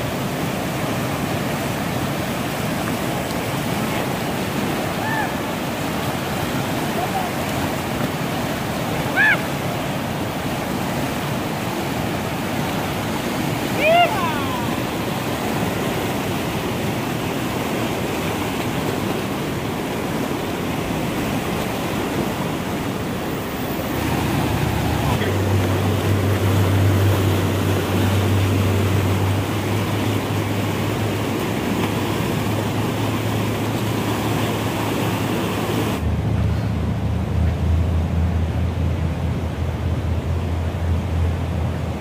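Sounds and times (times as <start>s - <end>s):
river rapids rushing: 0.0s - 42.0s
low rumble: 36.0s - 42.0s.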